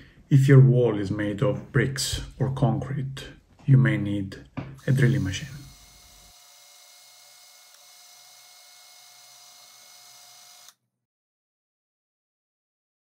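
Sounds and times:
cordless drill motor whine: 4.8 - 10.8.

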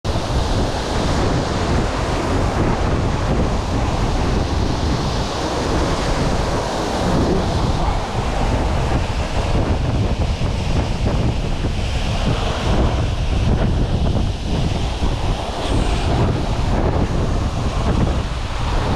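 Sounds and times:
wind buffeting microphone: 0.1 - 18.9.

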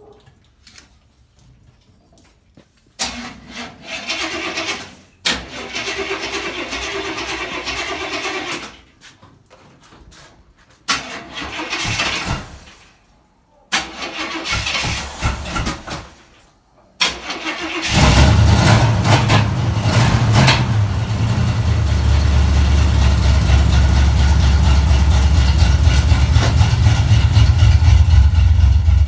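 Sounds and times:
car starter cranking: 3.0 - 8.8, 10.9 - 12.5, 13.7 - 16.0, 17.0 - 28.7.

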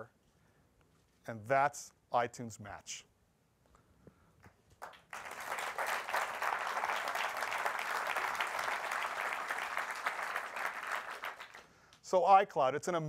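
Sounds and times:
audience applause: 4.8 - 11.7.

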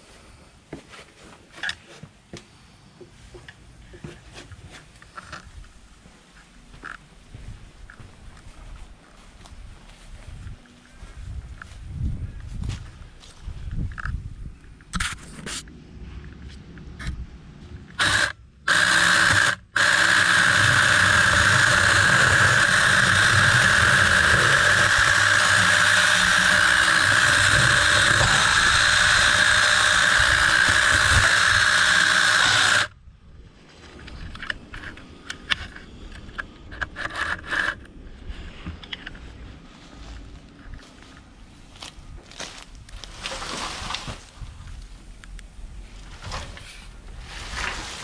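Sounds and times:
rustling and footsteps: 0.0 - 17.9, 33.4 - 45.1, 45.8 - 48.0
electric chainsaw cutting branch: 17.9 - 33.0.

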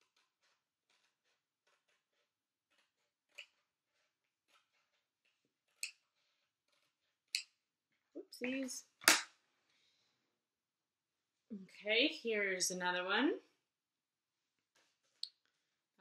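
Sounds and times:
scissors clacking on cardboard: 0.0 - 6.1
scissors snipping paper: 0.0 - 7.6.

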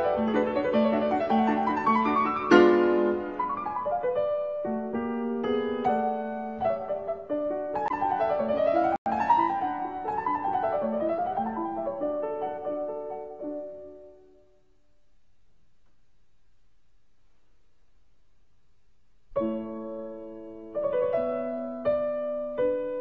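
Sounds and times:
piano music: 0.0 - 14.6, 19.4 - 23.0.

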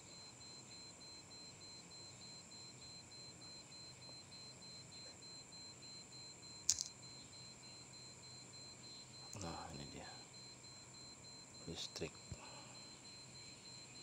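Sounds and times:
sharp click: 6.7 - 7.0.

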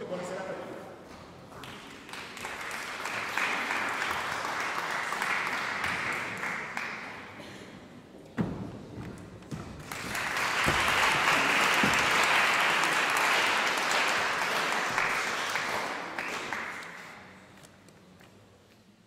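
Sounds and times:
audience applauding: 1.6 - 7.4, 9.8 - 17.3.

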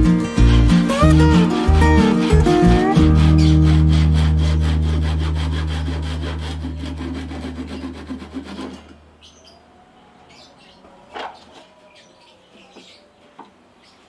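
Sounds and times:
background music: 0.0 - 6.6
hand saw cutting plywood: 0.0 - 9.0.

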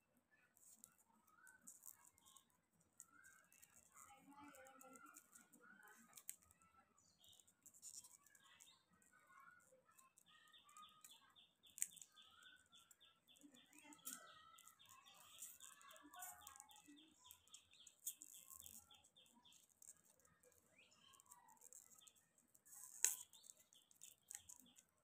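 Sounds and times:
bird chirping: 0.3 - 25.0
foil wrapper crinkling: 13.4 - 24.9.

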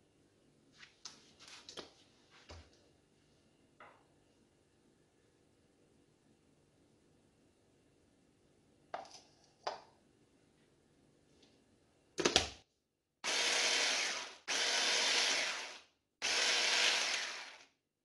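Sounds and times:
electric food chopper whirring: 13.2 - 17.7.

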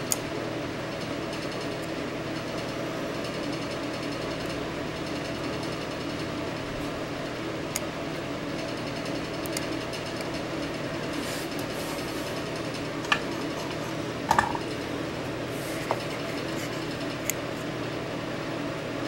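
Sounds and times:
low mechanical hum: 0.0 - 19.0
light ticks and taps from soldering: 9.4 - 10.3.

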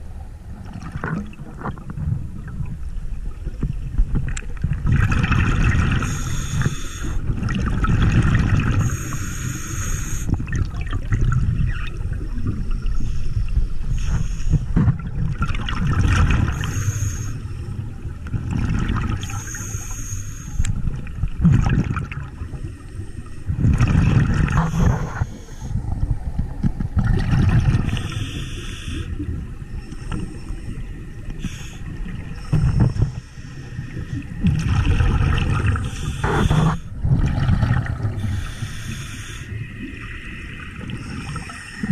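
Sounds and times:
exhaled bubbles rumbling: 0.0 - 9.2, 10.3 - 19.7, 20.6 - 22.8, 23.4 - 41.9
regulator hissing on inhale: 6.0 - 7.3, 8.8 - 10.4, 12.6 - 14.8, 16.5 - 17.8, 19.2 - 20.8, 22.4 - 23.5, 24.6 - 25.8, 27.9 - 34.2, 35.8 - 37.0, 38.1 - 39.8, 40.8 - 41.9.

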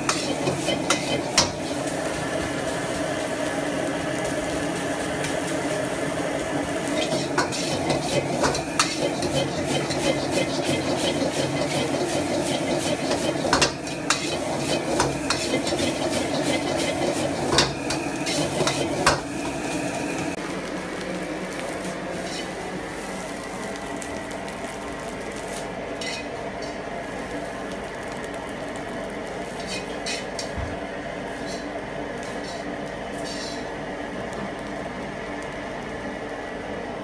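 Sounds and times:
metal ladle scraping a wok: 0.0 - 1.6, 7.0 - 19.1, 26.0 - 26.8, 29.6 - 30.5, 31.4 - 31.7, 32.3 - 32.6, 33.2 - 33.7
rice sizzling: 0.0 - 37.0.

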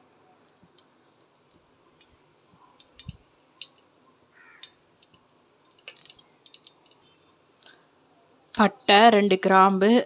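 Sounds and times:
kitchen clicks and taps: 2.8 - 3.9.

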